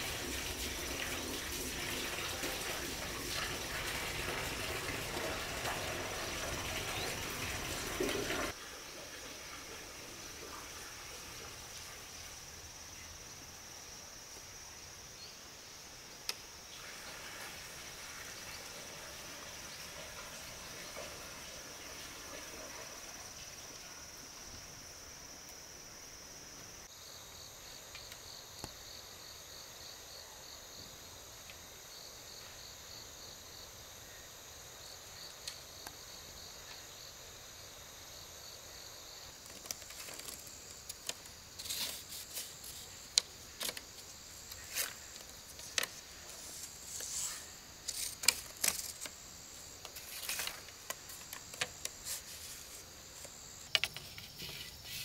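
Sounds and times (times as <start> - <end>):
insects trilling: 0.0 - 55.0
sharp clicks and knocks: 53.2 - 54.5.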